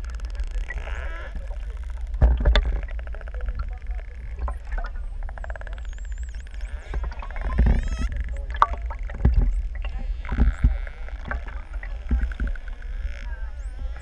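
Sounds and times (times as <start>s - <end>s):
underwater rumble: 0.0s - 14.0s
dolphin whistles: 5.9s - 8.1s.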